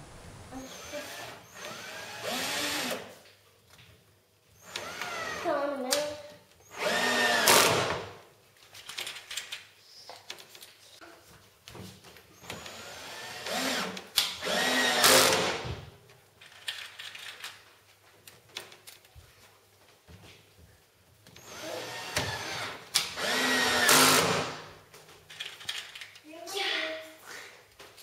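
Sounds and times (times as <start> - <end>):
cordless drill drilling into wood: 0.6 - 3.1, 4.6 - 5.4, 6.6 - 8.0, 12.4 - 15.6, 21.4 - 24.7.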